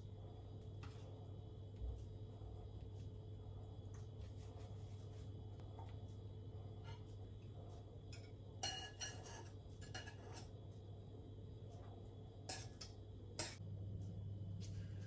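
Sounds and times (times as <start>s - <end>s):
low steady hum: 0.0s - 15.0s
fork clinking against a bowl: 8.1s - 10.5s.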